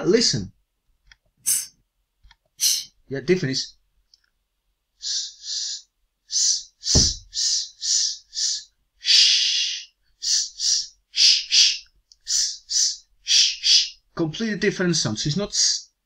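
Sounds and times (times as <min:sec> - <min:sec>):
man making hissing sounds: 0:01.4 - 0:01.8, 0:02.6 - 0:03.0, 0:05.0 - 0:14.0
soft thump: 0:06.9 - 0:07.3.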